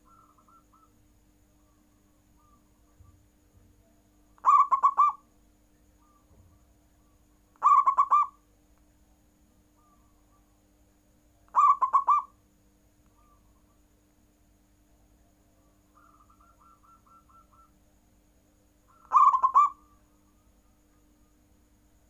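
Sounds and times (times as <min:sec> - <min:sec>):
dove cooing: 0:00.0 - 0:01.0, 0:04.4 - 0:05.2, 0:07.6 - 0:08.4, 0:11.5 - 0:12.3, 0:15.9 - 0:17.8, 0:18.9 - 0:20.4.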